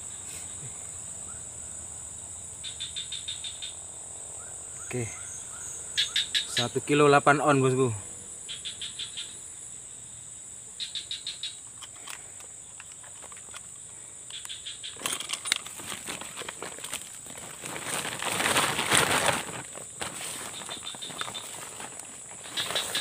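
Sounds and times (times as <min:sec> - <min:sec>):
insect chirping trills: 0:00.0 - 0:23.0
insects droning: 0:00.0 - 0:23.0
plastic sack rustling: 0:15.0 - 0:23.0.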